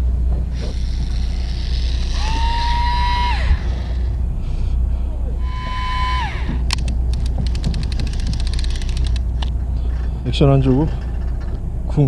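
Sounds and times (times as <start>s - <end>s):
electric fishing reel motor whine: 0.0s - 4.5s, 5.4s - 9.3s
steady low rumble: 0.0s - 12.0s.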